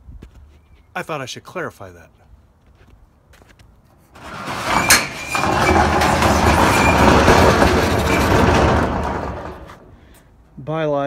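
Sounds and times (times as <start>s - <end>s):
metal roll-up door rattling: 4.2s - 9.9s.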